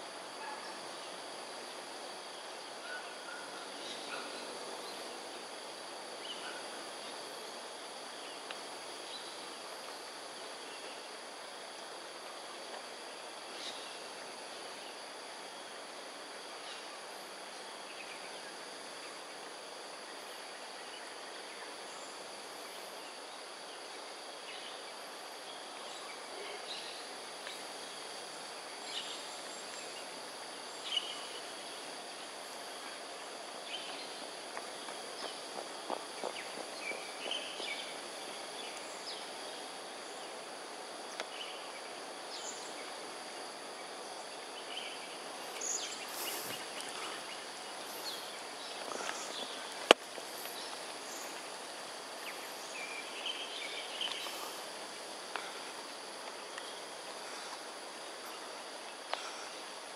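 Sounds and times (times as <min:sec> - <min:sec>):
background hum: 0:00.0 - 0:59.9
insect trilling: 0:36.5 - 0:59.9.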